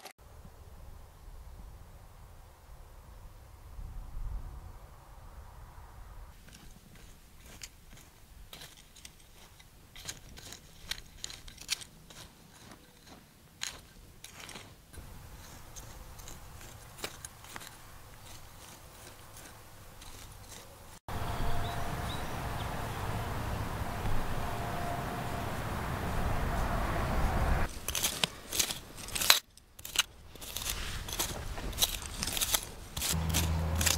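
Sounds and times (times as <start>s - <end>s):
hoe scraping dry soil: 6.3s - 22.4s, 27.6s - 33.9s.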